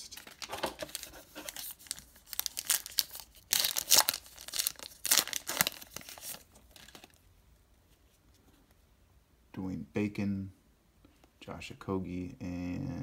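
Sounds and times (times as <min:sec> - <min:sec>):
plastic wrapper crinkling and tearing: 0:00.0 - 0:07.3.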